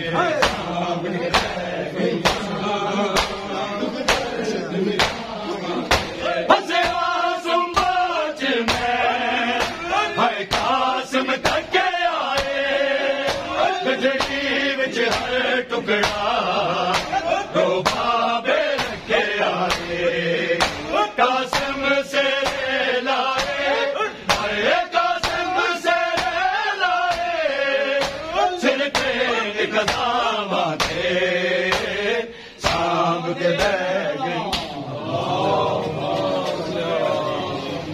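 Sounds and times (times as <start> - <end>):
men chanting: 0.0 - 37.9
hands slapping chests: 0.4 - 7.1, 8.7 - 9.9, 10.5 - 11.7, 12.3 - 12.6, 13.2 - 14.5, 15.1 - 15.4, 16.0 - 24.6, 25.2 - 27.4, 28.0 - 32.0, 32.6 - 33.8, 34.4 - 34.8.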